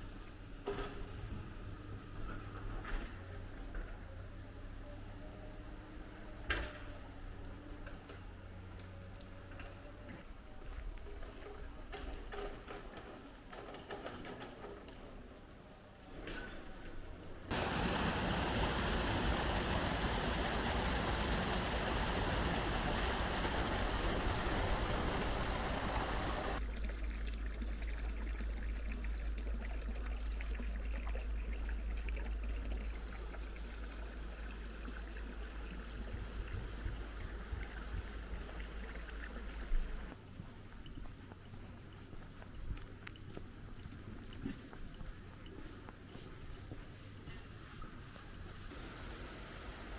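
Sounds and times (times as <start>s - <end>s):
water rushing in a stream: 17.5s - 40.2s.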